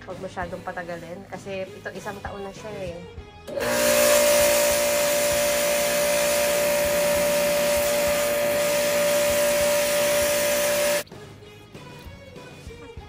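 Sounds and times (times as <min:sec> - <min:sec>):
pressure washer motor whine: 0:03.5 - 0:11.0
water jet hissing: 0:03.6 - 0:11.0.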